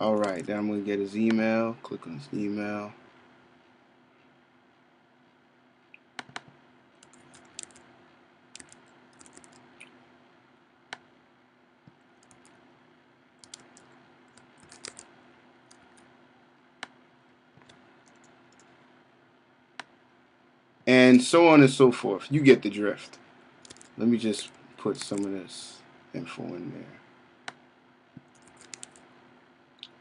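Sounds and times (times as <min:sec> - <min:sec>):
faint steady hum: 0:00.0 - 0:30.0
mouse clicks: 0:05.9 - 0:07.8, 0:13.4 - 0:15.1, 0:28.2 - 0:29.0
keyboard typing: 0:06.2 - 0:07.9, 0:08.5 - 0:09.7, 0:12.2 - 0:12.6, 0:13.4 - 0:15.1, 0:17.6 - 0:18.7, 0:23.6 - 0:25.3, 0:28.2 - 0:29.0.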